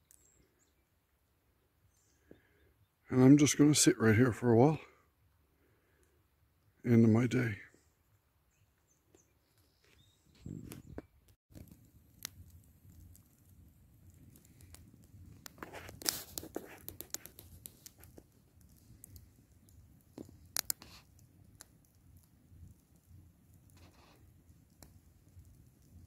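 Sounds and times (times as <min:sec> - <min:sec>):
campfire crackling and popping: 0:09.1 - 0:26.0.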